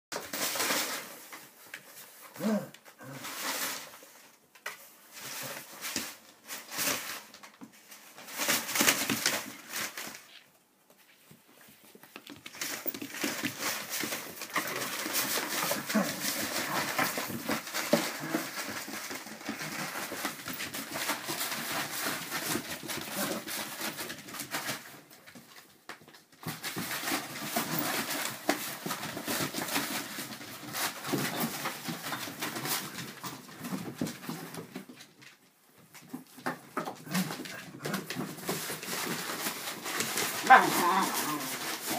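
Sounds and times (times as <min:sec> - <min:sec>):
paper rustling and crinkling: 0:00.1 - 0:41.9
scratching on cardboard: 0:36.4 - 0:41.9.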